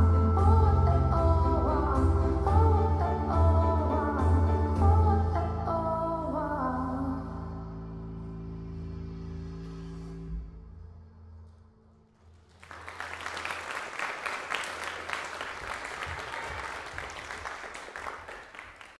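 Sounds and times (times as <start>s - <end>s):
audience applauding: 12.4s - 19.0s.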